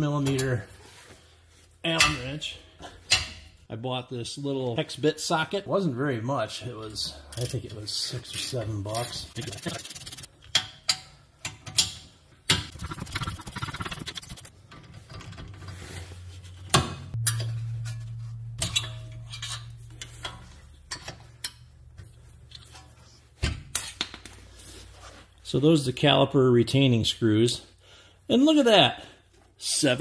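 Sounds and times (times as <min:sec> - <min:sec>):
rapid ratchet clicking: 0:09.4 - 0:10.3, 0:12.7 - 0:14.5
low steady hum: 0:13.9 - 0:24.0.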